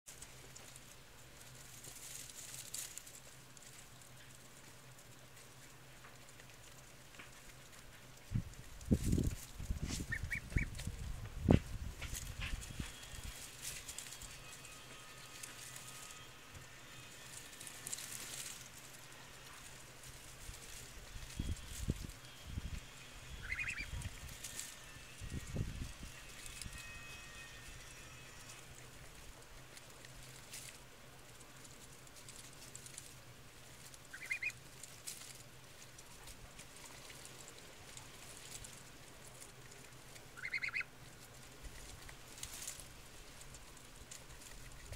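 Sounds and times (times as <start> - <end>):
geese pecking: 0.1 - 44.9
leaves rustling and crackling: 0.1 - 44.9
geese honking: 22.9 - 24.7, 34.1 - 34.7, 40.3 - 41.0.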